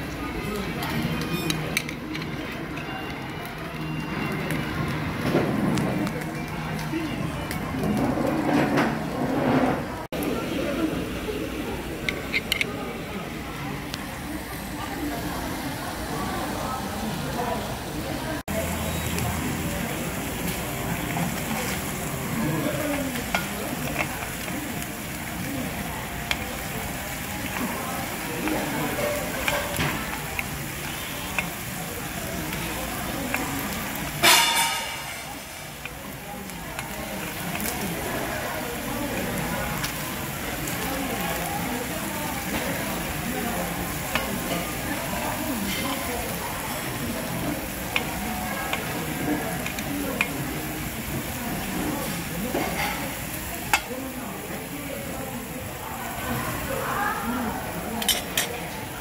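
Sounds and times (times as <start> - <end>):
murmur of voices: 0.0 - 59.0
beef sizzling on grill pan: 14.1 - 59.0
metal tongs clicking on pan: 49.6 - 50.4.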